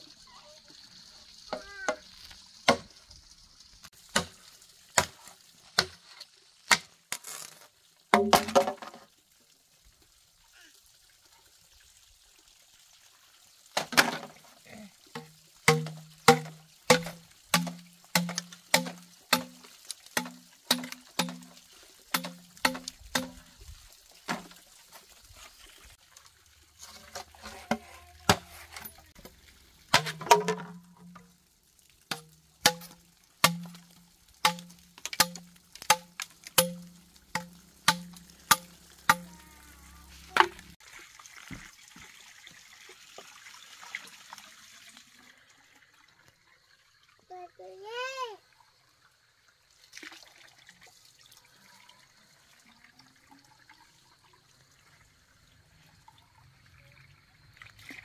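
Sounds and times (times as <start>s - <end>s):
machete chopping bamboo: 2.7s - 2.9s, 4.1s - 4.4s, 5.8s - 6.0s, 6.7s - 6.9s, 15.2s - 19.6s, 20.2s - 21.5s, 22.1s - 23.4s, 32.1s - 33.8s, 34.4s - 39.3s.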